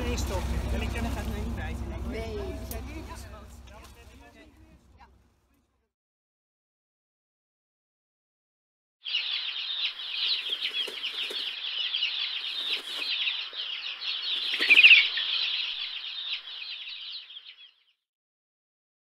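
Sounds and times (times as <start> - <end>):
small birds chirping: 9.0 - 18.0.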